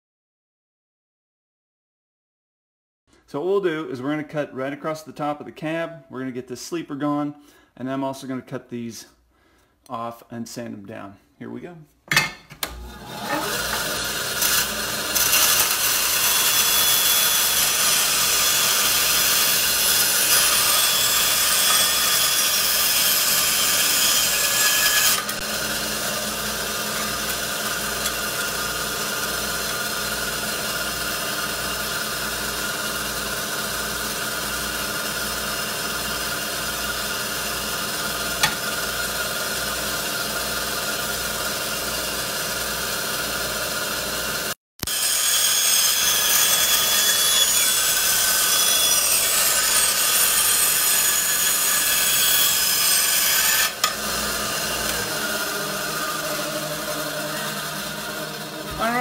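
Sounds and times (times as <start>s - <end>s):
bandsaw cutting metal: 12.1s - 59.0s
bandsaw running without load: 12.6s - 59.0s.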